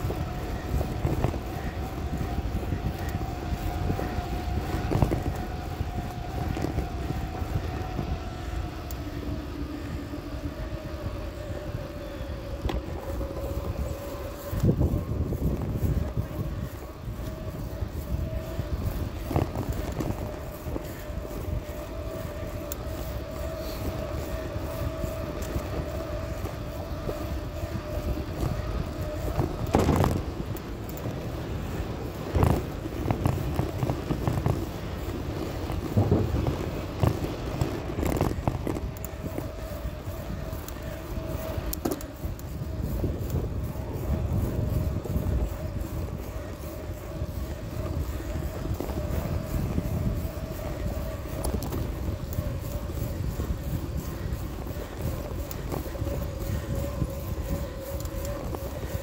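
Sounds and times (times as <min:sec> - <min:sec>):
bicycle tyre rumble: 0:00.0 - 0:59.0
steady hum: 0:00.0 - 0:59.0
wind on microphone: 0:00.0 - 0:59.0.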